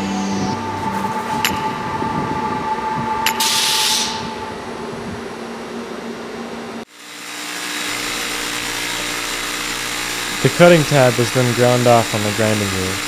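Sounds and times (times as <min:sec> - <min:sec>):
loud high hiss: 0:03.3 - 0:04.4, 0:07.4 - 0:13.0
bench grinder humming: 0:06.9 - 0:13.0
waterjet cutting metal: 0:06.9 - 0:13.0.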